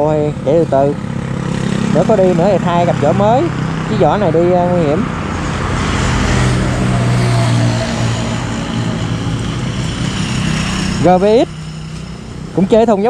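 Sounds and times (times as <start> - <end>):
continuous rushing noise: 0.0 - 13.0
motorcycle engine running: 0.0 - 13.0.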